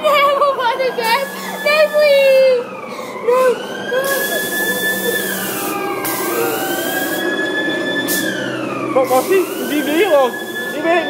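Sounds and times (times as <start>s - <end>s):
ride running noise: 0.0s - 11.0s
siren-like wail: 0.0s - 11.0s
hissing bursts: 3.4s - 7.4s, 9.0s - 10.9s.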